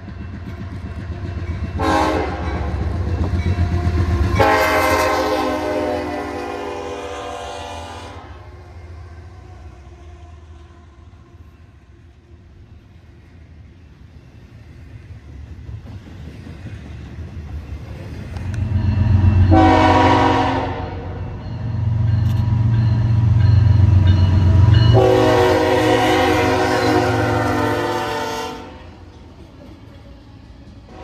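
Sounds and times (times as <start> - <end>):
diesel locomotive engine rumbling: 0.0 - 31.0
train air horn blasts: 1.8 - 2.8, 4.3 - 8.6, 19.4 - 21.2, 24.6 - 29.0.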